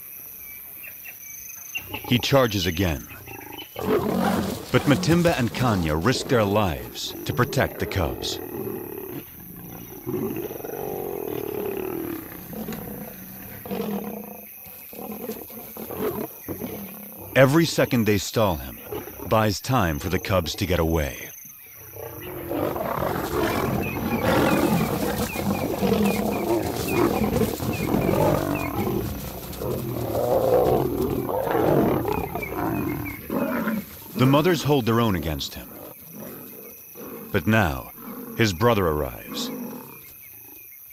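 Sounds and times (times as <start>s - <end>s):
lions growling and snarling: 1.8s - 40.7s.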